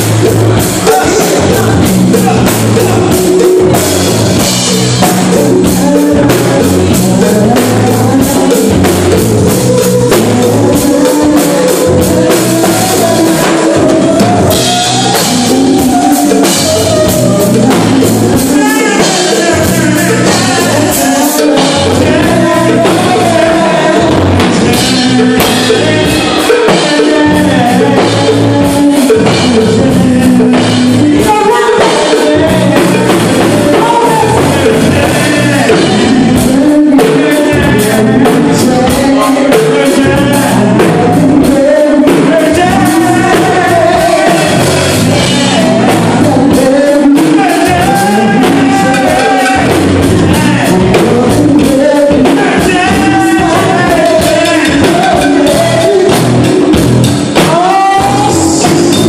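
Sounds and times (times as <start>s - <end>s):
drum beat: 0.0s - 59.0s
person singing: 0.0s - 59.0s
rock band playing: 0.0s - 59.0s.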